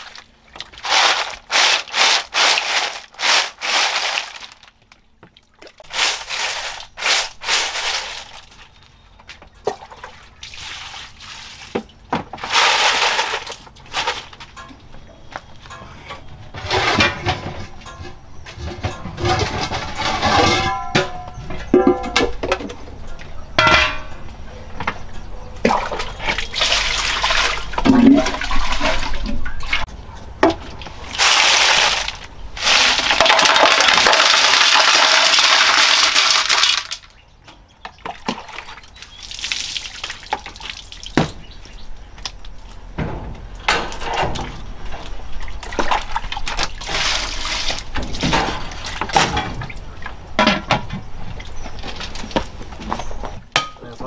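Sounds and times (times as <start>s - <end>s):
metal pots and dishes clanking: 15.7s - 24.2s, 53.5s - 53.8s.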